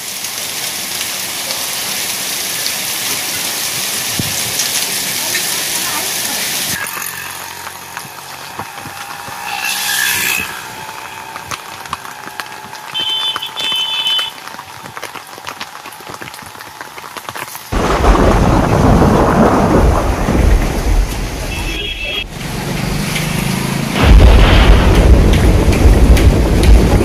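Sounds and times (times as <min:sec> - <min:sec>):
heavy rain: 0:00.0 - 0:27.0
rain pattering: 0:00.0 - 0:27.0
wind: 0:00.0 - 0:27.0
street traffic: 0:00.2 - 0:17.9, 0:20.5 - 0:27.0
vehicle horn toots: 0:12.9 - 0:14.4, 0:21.5 - 0:22.3
thunder rumble: 0:17.7 - 0:21.7, 0:24.0 - 0:27.0.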